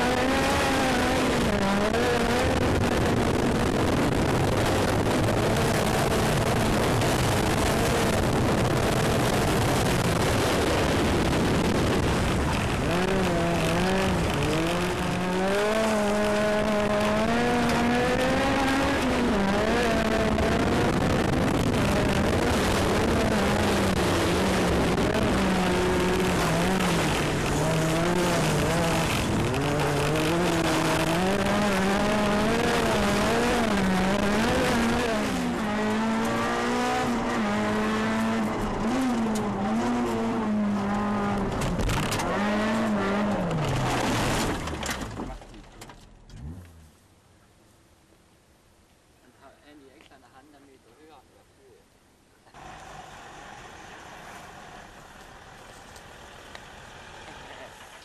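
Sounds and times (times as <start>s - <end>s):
rally car engine revving: 0.0s - 47.0s
tyres on gravel: 21.3s - 36.4s, 40.9s - 46.8s.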